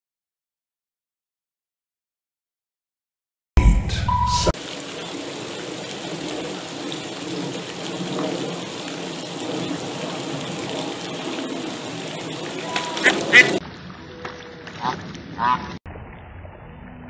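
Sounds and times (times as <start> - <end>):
loud rumbling burst: 3.6 - 4.5
steady rushing noise: 3.6 - 13.6.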